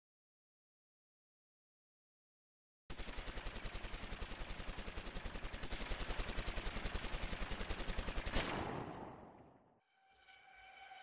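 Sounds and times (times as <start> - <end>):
automatic gunfire: 2.9 - 9.4.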